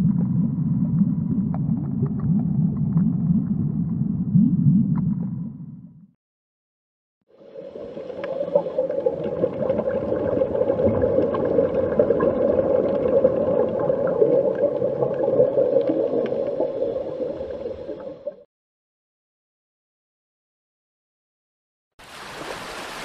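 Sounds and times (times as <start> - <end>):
underwater watery noise: 7.3 - 18.5.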